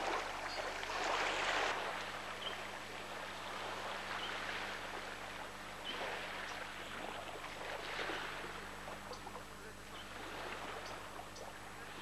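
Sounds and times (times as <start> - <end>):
surf washing ashore: 0.0 - 9.1, 10.0 - 11.2.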